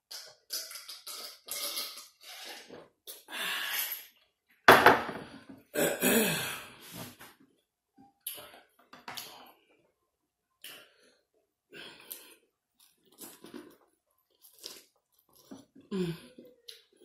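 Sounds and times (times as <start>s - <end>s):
faint eating sounds: 7.9s - 17.0s.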